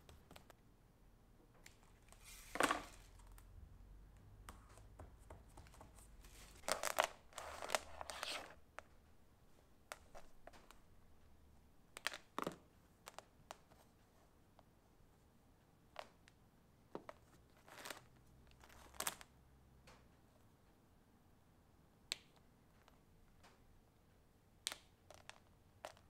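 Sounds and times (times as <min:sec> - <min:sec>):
cable rustling and scraping: 0:01.6 - 0:03.5, 0:05.7 - 0:08.9.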